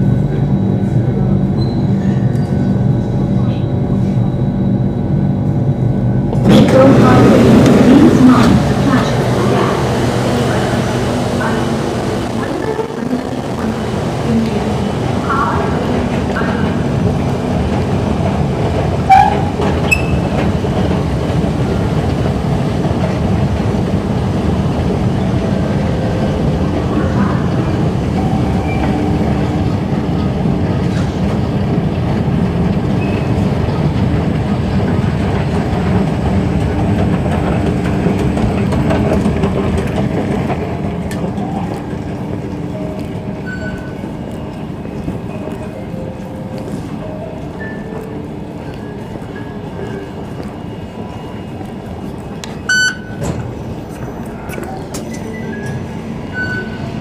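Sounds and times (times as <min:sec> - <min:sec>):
train rumble: 0:00.0 - 0:57.0
station hum: 0:02.6 - 0:32.9.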